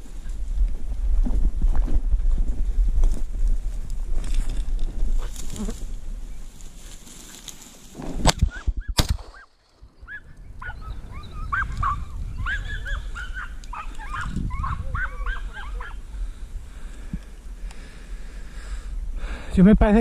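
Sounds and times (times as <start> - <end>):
gunshots: 8.3 - 9.5
hounds yelping: 8.5 - 16.1.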